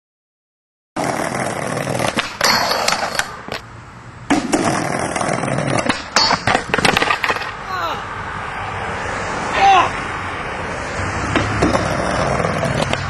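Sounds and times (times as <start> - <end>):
skateboard clacks: 1.0 - 3.6, 4.3 - 7.6, 11.3 - 13.0
skateboard wheels rolling on pavement: 1.0 - 13.0.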